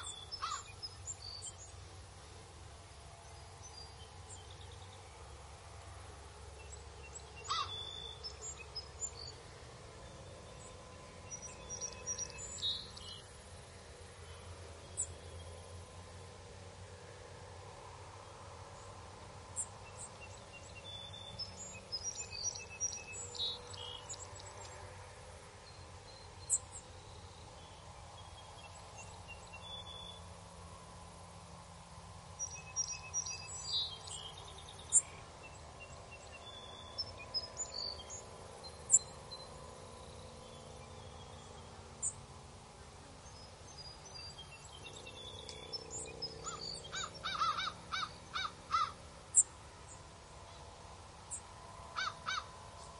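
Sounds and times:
harsh bird calls: 0.0 - 0.9, 7.4 - 8.5, 45.8 - 49.5, 51.9 - 52.6
birds chirping: 0.0 - 2.0, 6.5 - 15.6, 32.2 - 52.9.

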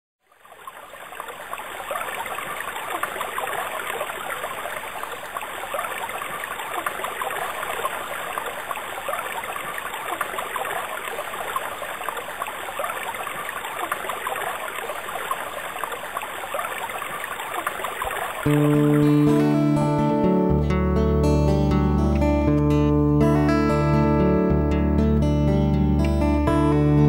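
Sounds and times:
water rushing and trickling: 0.2 - 20.6.

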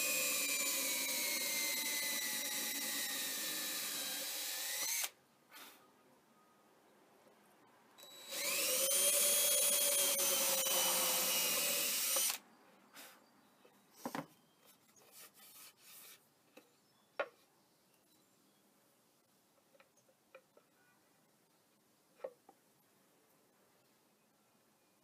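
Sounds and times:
cordless drill boring into wood: 0.0 - 5.2, 8.0 - 12.4.

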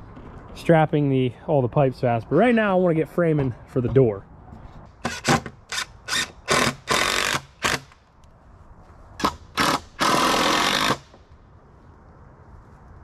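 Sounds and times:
drill driving screws into wood: 5.0 - 8.0, 9.2 - 11.2.

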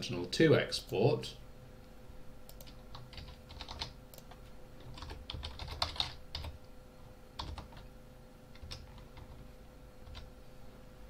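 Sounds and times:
faint steady hum: 0.0 - 11.0
typing on computer keyboard: 2.5 - 6.6, 7.4 - 7.9, 8.6 - 9.4, 10.0 - 10.3.

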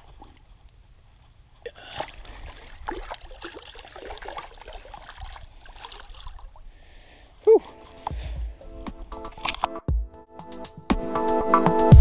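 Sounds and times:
shallow water splashing: 0.0 - 7.3.

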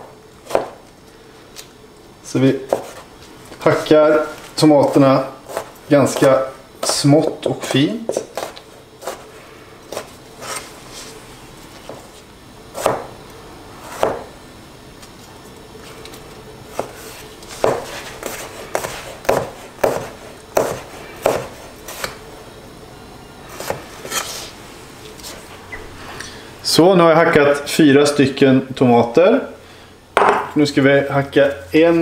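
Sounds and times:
knife chopping on cutting board: 0.0 - 0.8, 2.7 - 3.0, 5.5 - 6.2, 8.0 - 9.2, 9.9 - 10.6, 12.8 - 13.1, 13.9 - 14.3, 16.7 - 17.0, 17.6 - 22.2, 23.6 - 24.3, 30.2 - 30.6.

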